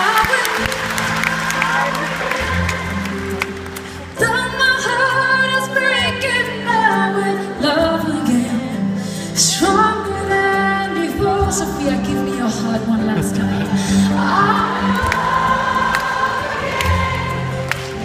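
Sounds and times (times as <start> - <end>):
woman singing into a microphone: 4.2 - 17.6.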